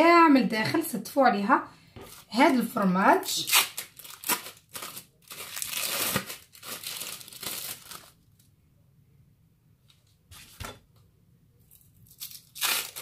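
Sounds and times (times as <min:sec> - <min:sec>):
soft handling sounds: 0:01.9 - 0:02.6
cheese slices crinkling apart: 0:03.5 - 0:08.5, 0:11.7 - 0:13.0.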